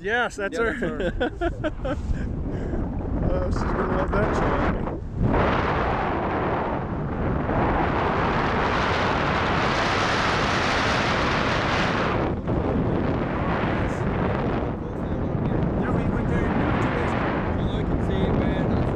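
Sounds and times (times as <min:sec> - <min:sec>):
wind rushing over microphone: 0:00.0 - 0:18.9.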